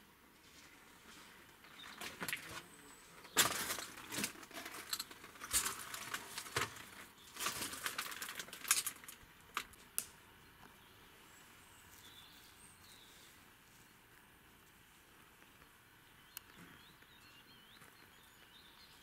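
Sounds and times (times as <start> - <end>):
footsteps crunching on debris: 3.3 - 9.2.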